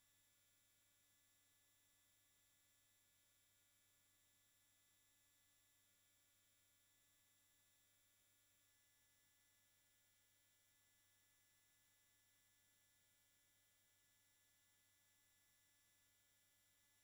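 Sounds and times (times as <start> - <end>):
faint electronic hum and hiss: 0.0 - 17.0.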